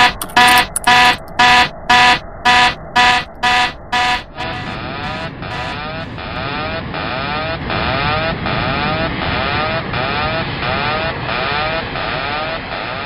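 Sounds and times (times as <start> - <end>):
button press: 0.0 - 5.8
electronic alarm beeps: 0.0 - 6.2
aircraft engine with rising whine: 0.8 - 12.8.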